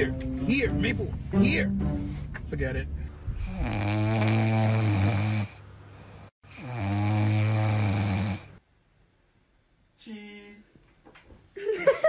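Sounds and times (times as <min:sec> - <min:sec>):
dog snoring: 0:03.4 - 0:08.6.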